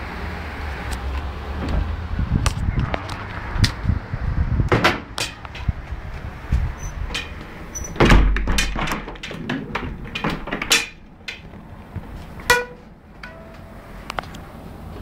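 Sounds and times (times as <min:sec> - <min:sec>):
short ringing ping: 0:12.5 - 0:13.6.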